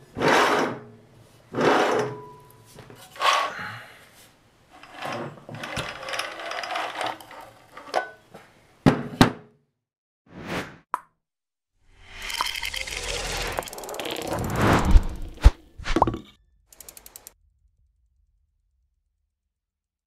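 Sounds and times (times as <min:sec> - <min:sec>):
carriage rolling on bearings: 0:04.8 - 0:07.9, 0:12.1 - 0:15.6, 0:16.8 - 0:17.4.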